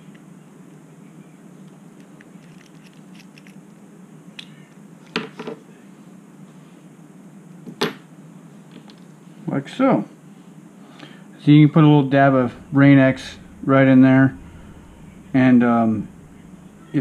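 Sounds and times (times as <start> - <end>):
steady low hum: 10.1 - 17.0.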